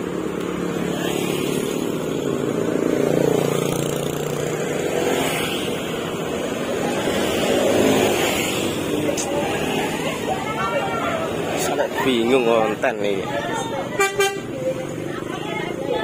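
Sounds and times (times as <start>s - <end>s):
car engines passing: 0.0s - 16.0s
motorcycle engines: 0.0s - 16.0s.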